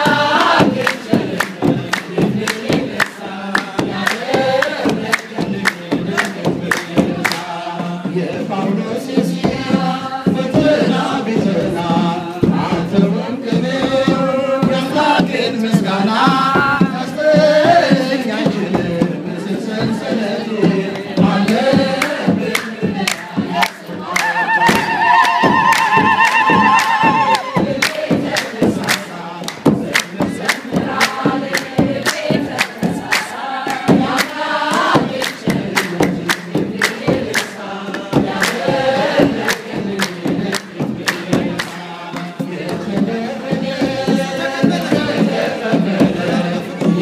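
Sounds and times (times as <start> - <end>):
congregation singing a chant: 0.0 - 47.0
drums beating: 0.0 - 47.0
hand clapping: 0.3 - 7.6, 21.5 - 42.8
high warbling ululation: 24.3 - 27.4.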